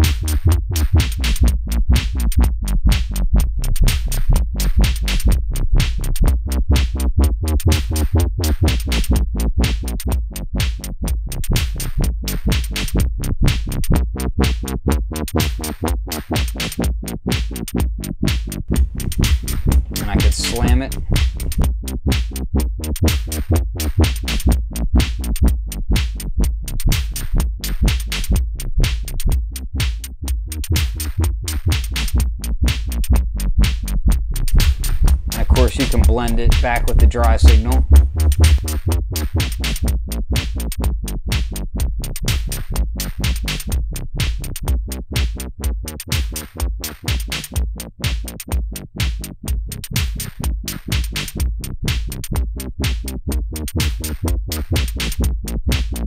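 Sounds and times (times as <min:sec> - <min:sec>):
drum machine pattern: 0:00.0 - 0:03.2, 0:03.9 - 0:05.4, 0:06.8 - 0:10.0, 0:11.6 - 0:13.1, 0:18.6 - 0:22.3, 0:23.0 - 0:26.2, 0:26.9 - 0:28.4, 0:29.8 - 0:41.6, 0:42.3 - 0:43.8, 0:44.5 - 0:49.3, 0:49.9 - 0:56.0
pumping synth line: 0:18.7 - 0:21.7, 0:34.4 - 0:39.7.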